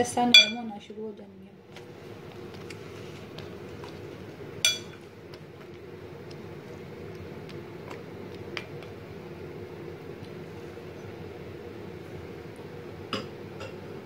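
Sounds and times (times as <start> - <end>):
metal spoon clinking glass bowl: 0.4 - 0.6, 4.7 - 5.0.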